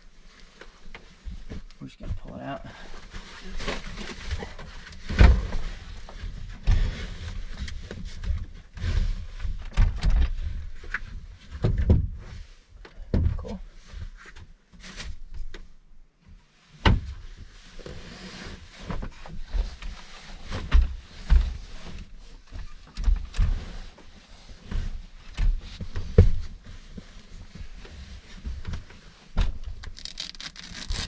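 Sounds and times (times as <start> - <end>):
sliding scrapes: 29.9 - 31.0.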